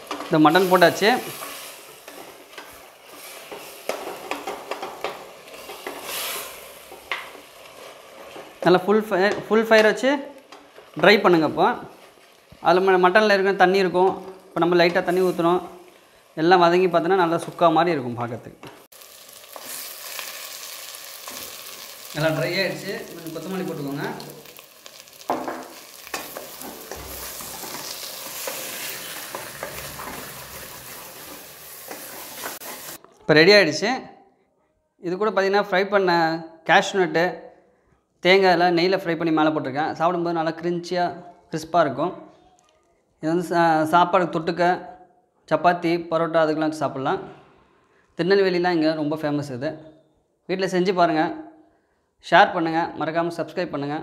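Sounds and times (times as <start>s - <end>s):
spatula scraping a pot: 0.0s - 8.6s, 26.0s - 33.0s
frying sizzle: 0.0s - 9.4s, 10.4s - 18.0s, 18.8s - 33.0s.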